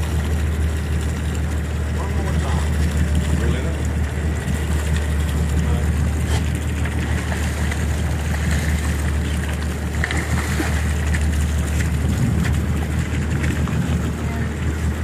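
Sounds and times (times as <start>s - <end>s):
boat engine droning: 0.0s - 15.0s.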